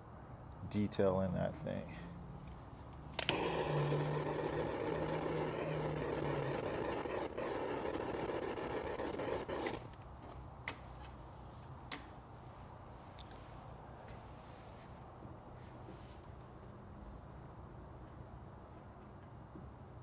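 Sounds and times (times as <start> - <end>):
machine running: 3.2 - 9.9.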